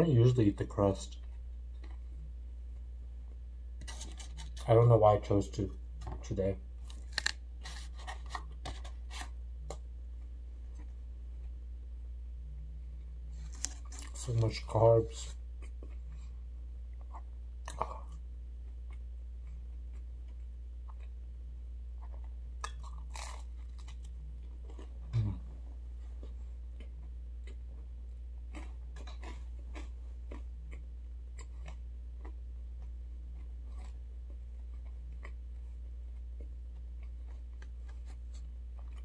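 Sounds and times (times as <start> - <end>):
steady low hum: 0.0 - 39.0
chewing pizza crust: 13.3 - 21.2, 21.9 - 39.0.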